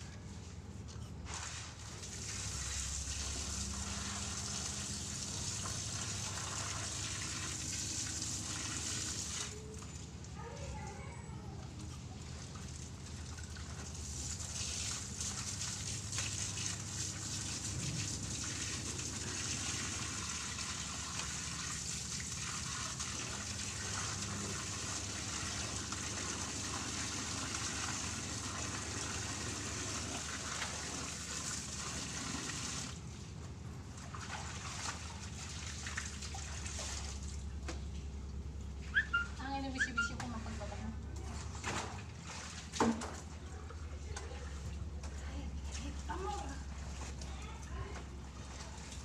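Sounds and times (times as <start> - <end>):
hand-washing splashes: 1.2 - 10.2, 12.0 - 38.3, 38.9 - 49.0
water running from a tap: 1.9 - 10.7, 12.0 - 33.1, 38.9 - 41.4.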